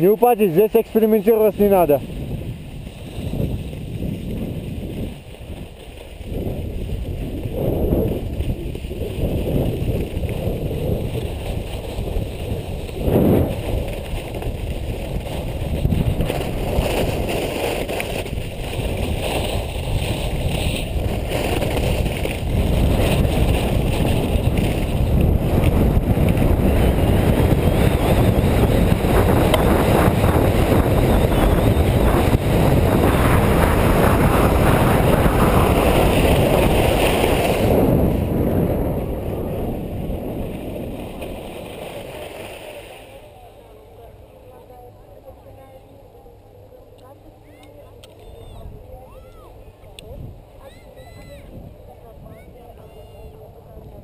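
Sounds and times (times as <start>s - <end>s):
wind rushing over microphone: 0.0s - 43.4s, 47.9s - 54.0s
skis sliding on packed snow: 0.0s - 44.7s.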